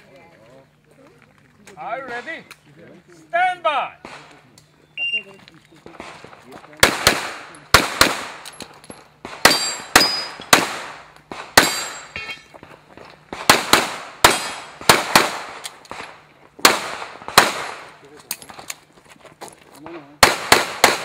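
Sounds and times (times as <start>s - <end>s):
pistol shots echoing: 6.0s - 8.6s, 9.2s - 12.4s, 13.3s - 18.0s, 20.2s - 21.0s.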